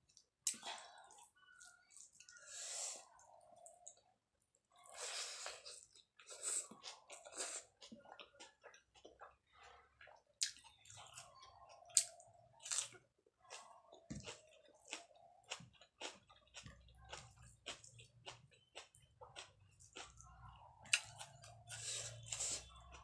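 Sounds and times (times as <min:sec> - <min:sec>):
wet chewing clicks and smacks: 0:05.6 - 0:23.0.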